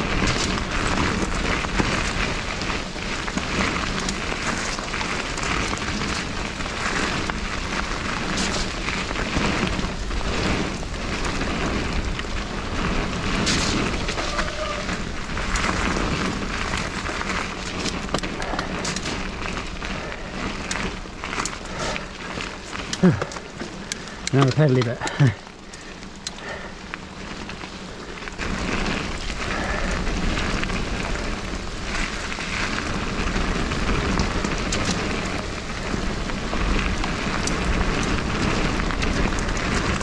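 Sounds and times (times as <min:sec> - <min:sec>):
wind rushing on microphone: 0:00.0 - 0:25.4
bike rattling over bumps: 0:00.0 - 0:40.0
tyres crunching through wet gravel: 0:00.0 - 0:40.0.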